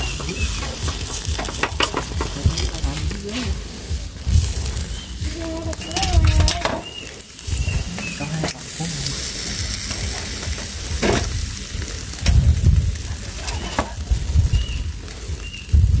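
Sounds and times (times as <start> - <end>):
sharp pops: 0.0 - 3.6
meat sizzling on grill: 0.0 - 16.0.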